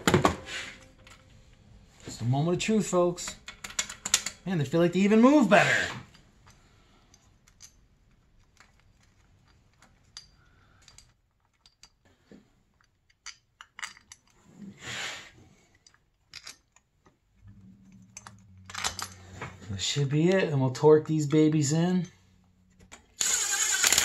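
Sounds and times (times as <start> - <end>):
small metallic clicks: 6.1 - 12.1.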